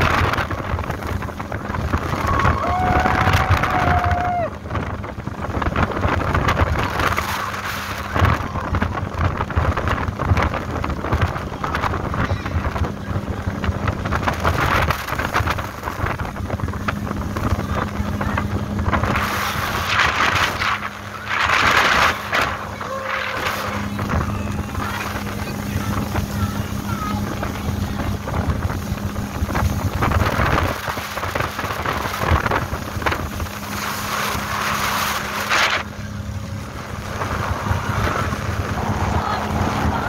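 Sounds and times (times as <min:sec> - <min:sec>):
hull through choppy water: 0:00.0 - 0:40.0
motorboat engine running: 0:00.0 - 0:40.0
wind buffeting microphone: 0:00.0 - 0:40.0.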